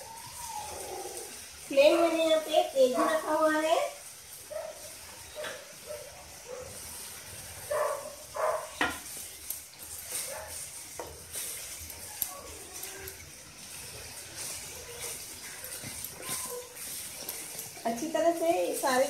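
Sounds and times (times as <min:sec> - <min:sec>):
paste sizzling in oil: 0:00.0 - 0:19.0
wooden spatula scraping pan: 0:13.9 - 0:19.0.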